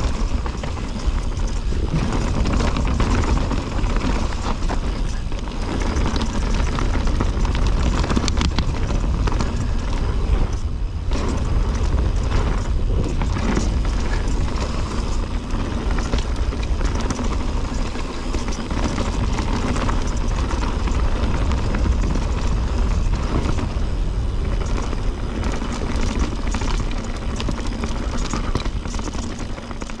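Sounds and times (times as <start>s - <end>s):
bike clattering over bumps: 0.0s - 30.0s
tyres crunching over dirt: 0.0s - 30.0s
wind on microphone: 0.0s - 30.0s.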